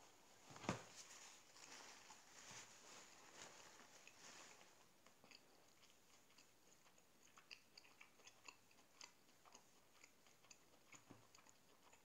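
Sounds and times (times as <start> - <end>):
person chewing: 4.0 - 12.0.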